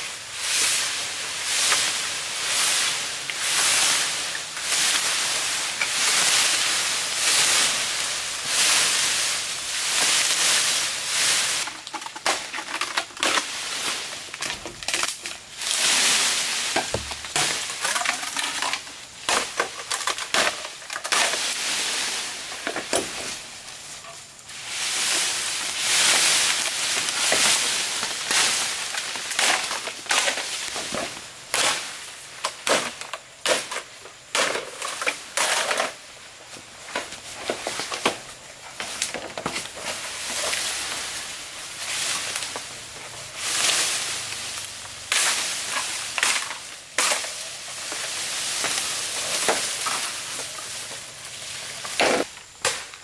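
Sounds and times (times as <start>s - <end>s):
rustling crackling leaves and branches: 0.0s - 53.0s
bamboo snapping and machete chops: 31.5s - 35.7s, 51.8s - 53.0s.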